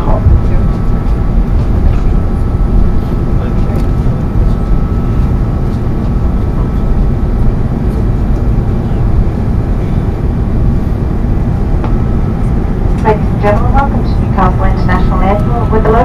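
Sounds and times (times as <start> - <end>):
airliner cabin engine rumble: 0.0 - 16.0.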